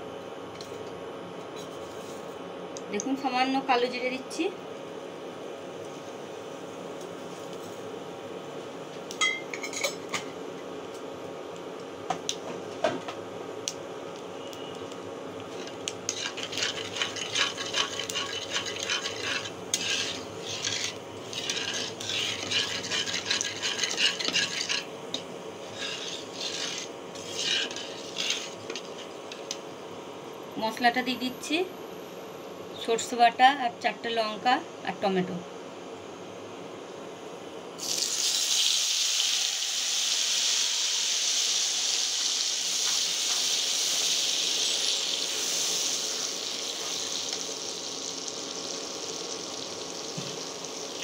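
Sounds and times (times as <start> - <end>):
steady hum: 0.0 - 38.0
spatula scraping a pan: 15.5 - 24.9, 25.6 - 29.2.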